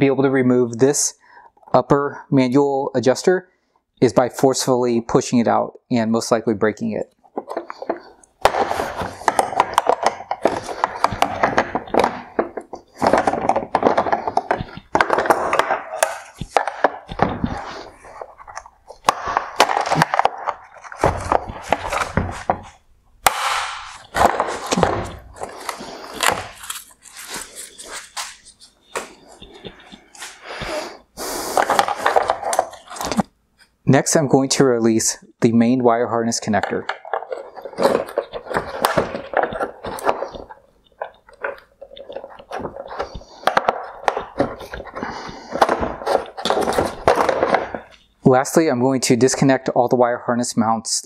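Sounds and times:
hard plastic scraping and creaking: 7.0 - 22.8, 23.8 - 33.3, 36.4 - 49.6
sharp plastic crack: 7.4 - 22.6, 23.2 - 27.0, 36.6 - 48.1.

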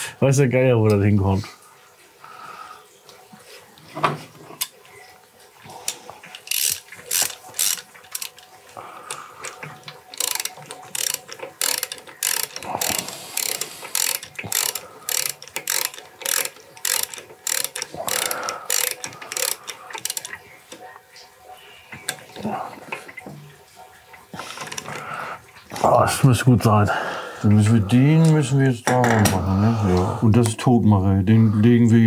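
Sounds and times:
ratchet wrench rasping: 6.4 - 8.4, 10.2 - 20.4.

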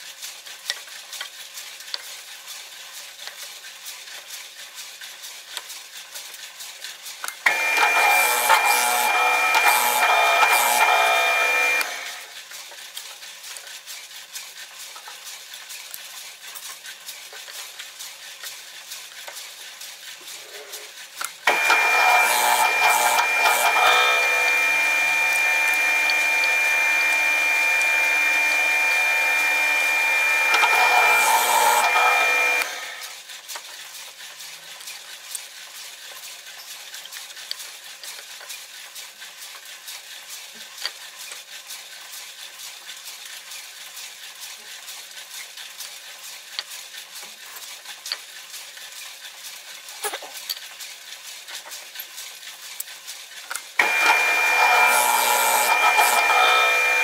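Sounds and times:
drill press motor whine: 7.5 - 12.2, 21.5 - 33.0, 53.8 - 57.0
drill bit cutting wood: 7.5 - 12.3, 21.5 - 33.0, 53.8 - 57.0.

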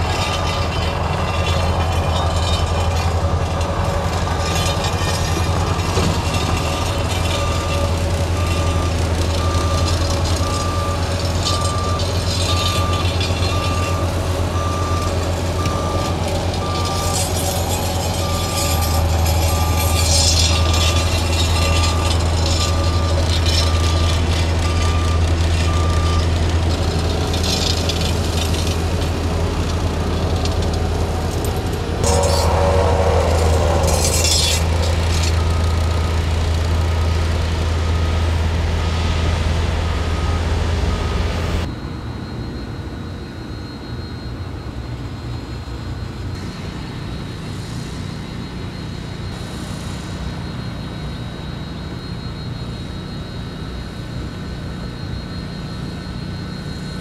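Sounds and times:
diesel machinery rumbling: 0.0 - 57.0
backup alarm beeping: 5.4 - 26.8, 32.0 - 37.2.

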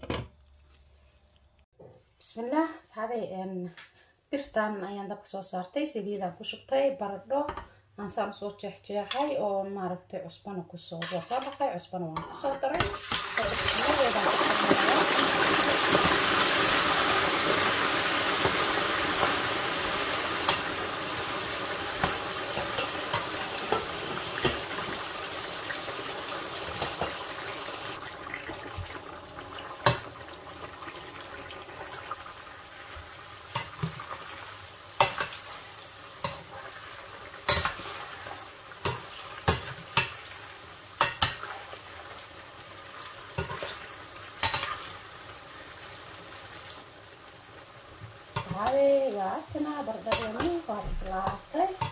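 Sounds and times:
potatoes sizzling in hot oil: 12.8 - 51.9.

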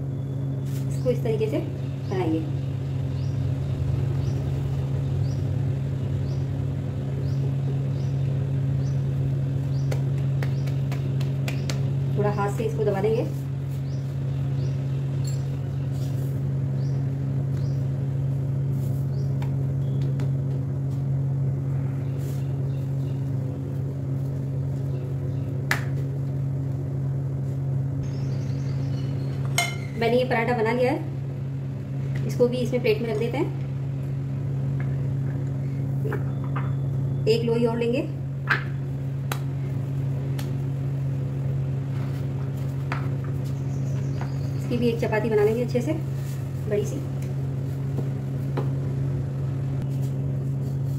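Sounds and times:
low electrical hum: 0.0 - 50.9
dough being folded and pressed: 9.8 - 12.0.

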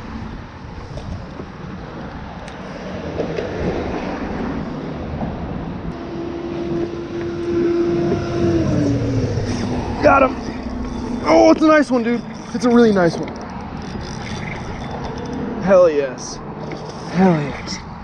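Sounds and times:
traffic rumble: 0.0 - 18.0
steady hum dropping in pitch: 5.9 - 17.2.

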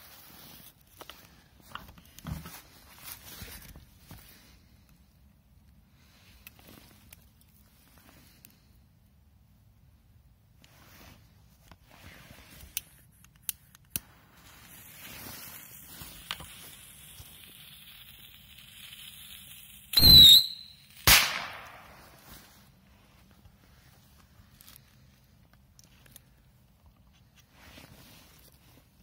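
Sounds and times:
firecracker clicks: 12.6 - 22.2
firecracker hissing: 14.0 - 22.8
high firecracker whistle: 19.9 - 22.0
loud firecracker bang: 20.0 - 22.2.

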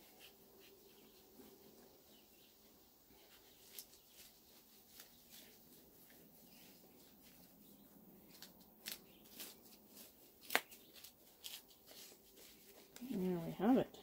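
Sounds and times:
hands pressing soil: 3.2 - 13.5.

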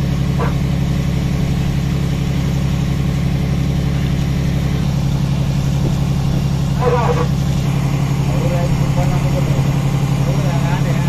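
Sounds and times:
boat engine droning: 0.0 - 11.0.

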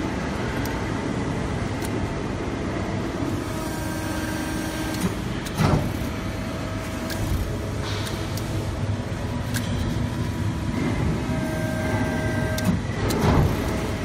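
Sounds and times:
press brake machine hum: 0.0 - 14.0.

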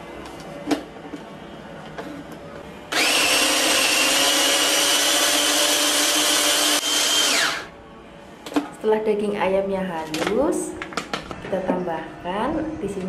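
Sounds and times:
electric food chopper whirring: 2.9 - 7.7.

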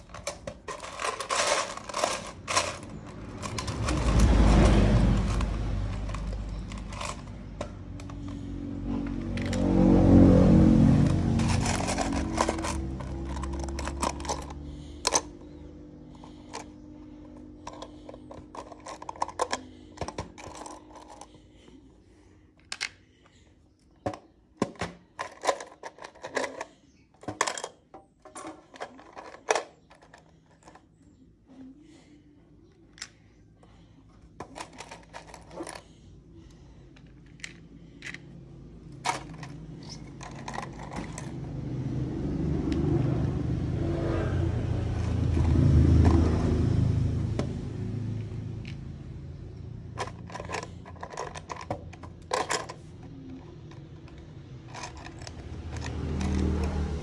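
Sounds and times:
plastic bricks clicking in a tin: 0.0 - 4.4, 5.2 - 8.4, 11.4 - 15.3, 17.5 - 21.4, 24.8 - 30.8, 39.0 - 41.4, 49.9 - 56.8.

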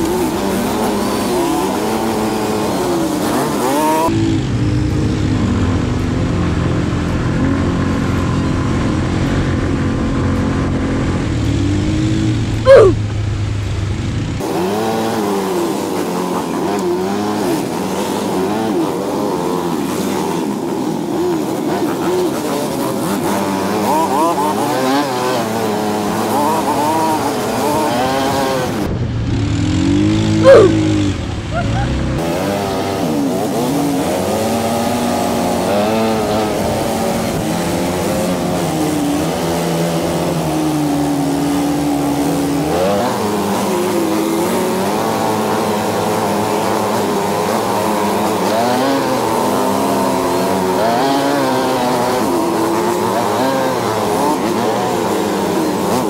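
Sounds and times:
atv engine revving: 0.0 - 56.0
sudden loud noises: 12.6 - 13.2, 27.9 - 32.2.

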